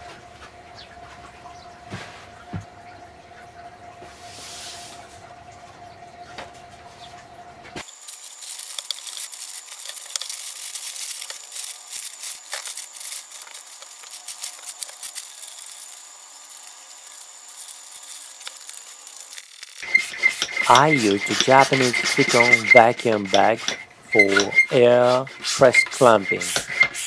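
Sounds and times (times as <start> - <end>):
plastic bag crinkling and rustling: 7.8 - 19.9.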